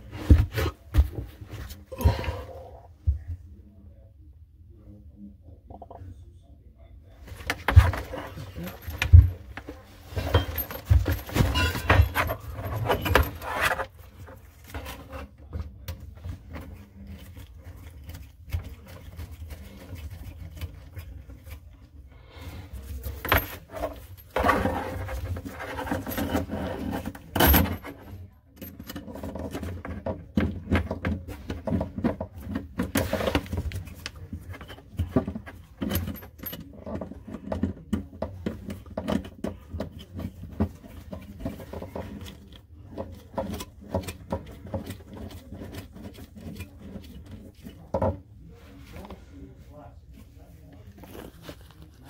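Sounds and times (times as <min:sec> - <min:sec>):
clicks and knocks of handling: 0:07.3 - 0:21.7, 0:23.0 - 0:48.3
scrape or rattle: 0:22.8 - 0:28.1.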